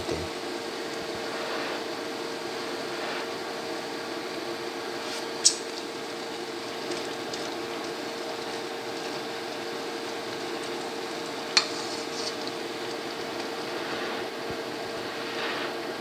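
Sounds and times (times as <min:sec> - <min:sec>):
steady hum: 0:00.0 - 0:16.0
soup bubbling: 0:05.2 - 0:15.0.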